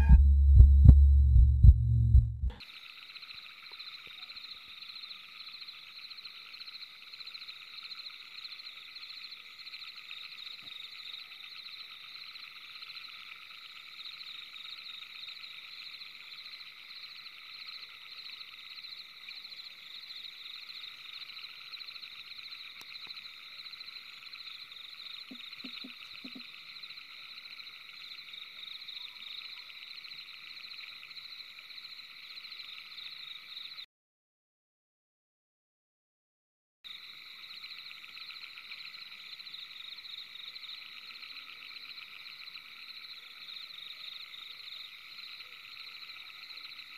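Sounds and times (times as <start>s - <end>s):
night chorus of calling animals: 2.6s - 33.8s, 36.9s - 46.9s.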